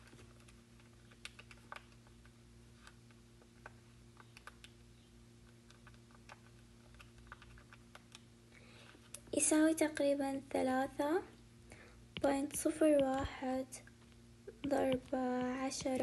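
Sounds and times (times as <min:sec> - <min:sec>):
faint electrical hum: 0:00.0 - 0:16.0
calculator keys clicking: 0:00.2 - 0:02.2, 0:03.6 - 0:04.8, 0:05.7 - 0:08.3.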